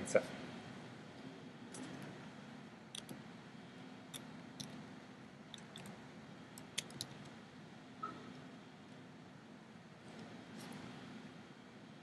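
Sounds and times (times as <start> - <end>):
faint steady hum: 0.0 - 12.0
mouse and keyboard clicks: 2.9 - 3.2, 5.5 - 5.9, 6.6 - 7.3.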